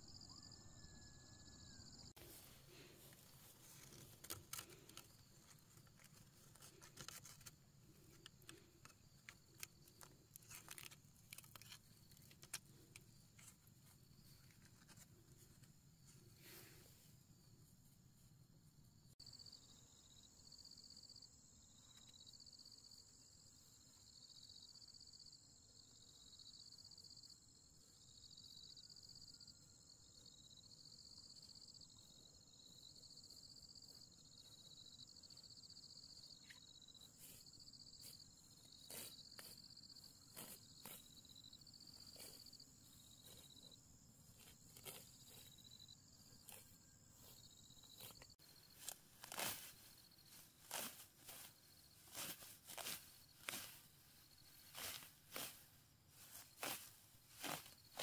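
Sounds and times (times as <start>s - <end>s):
pulsing insect chirp: 0.0s - 15.0s, 18.9s - 58.0s
footsteps on dry grass: 2.2s - 8.2s, 46.3s - 58.0s
insects buzzing: 28.2s - 58.0s.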